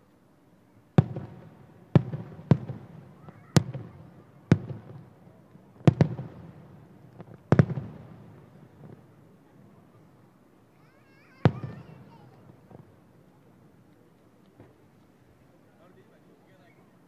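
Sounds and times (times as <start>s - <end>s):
distant firework booms: 1.0s - 9.1s, 11.4s - 13.0s.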